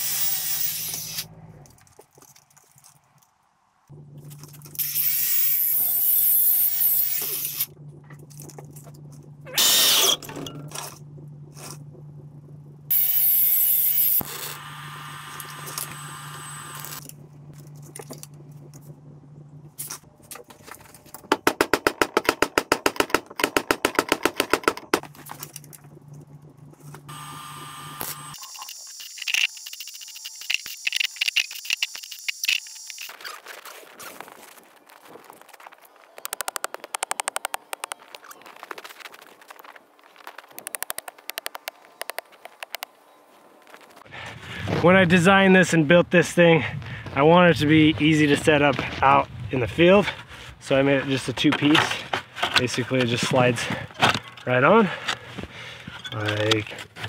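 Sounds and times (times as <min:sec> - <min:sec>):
welding crackling and hissing: 0:00.0 - 0:01.3, 0:04.2 - 0:07.7, 0:12.9 - 0:17.0, 0:26.9 - 0:42.8
steady low hum: 0:03.5 - 0:28.4, 0:41.1 - 0:57.0.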